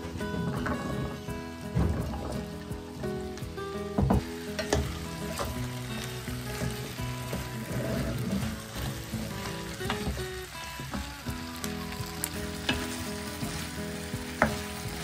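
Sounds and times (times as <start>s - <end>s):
vegetables sizzling in a pot: 0.0s - 15.0s.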